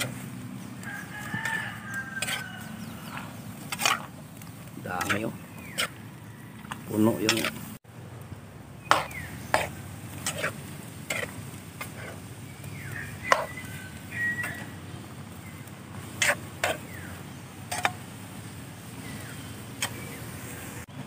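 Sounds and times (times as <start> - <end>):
utensil scraping pot: 0.0 - 4.2, 4.8 - 7.8, 8.9 - 14.8, 16.1 - 18.0.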